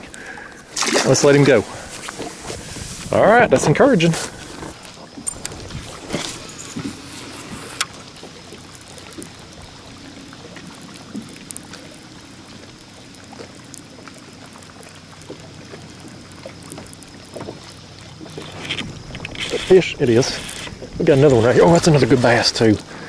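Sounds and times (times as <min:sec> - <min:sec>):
water lapping against kayak hull: 0:00.0 - 0:23.0.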